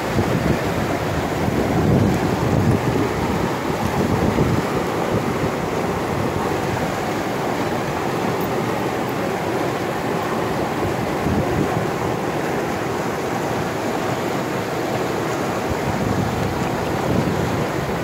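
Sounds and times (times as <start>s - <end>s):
river water flowing over rocks: 0.0s - 18.0s.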